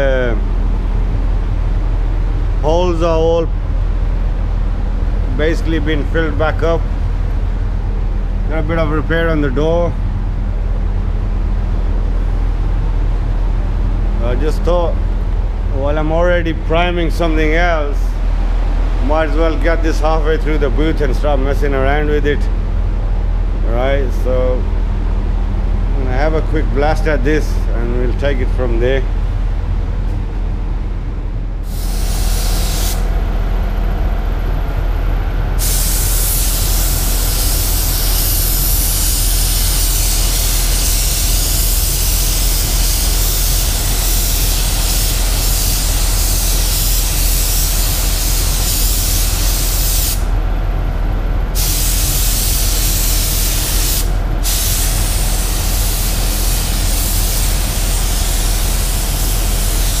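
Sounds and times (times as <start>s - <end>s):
low hum: 0.0s - 41.6s, 50.2s - 55.8s
spray gun hissing: 31.6s - 33.1s, 35.6s - 50.3s, 51.6s - 60.0s.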